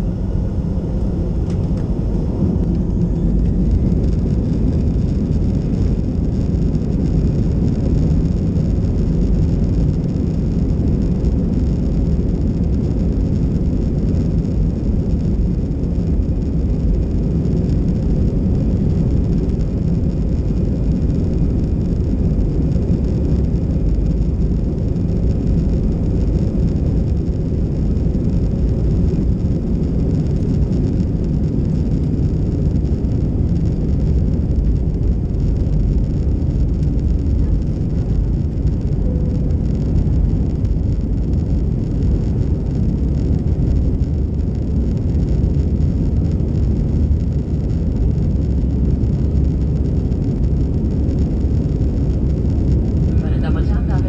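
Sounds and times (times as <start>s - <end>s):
jet engines rumbling in cabin: 0.0s - 54.0s.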